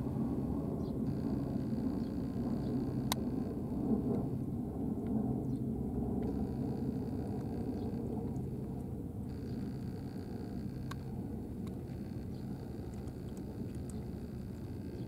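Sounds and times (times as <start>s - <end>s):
low mechanical rumble with hum: 0.0s - 15.0s
cat chewing dry kibble: 10.9s - 15.0s.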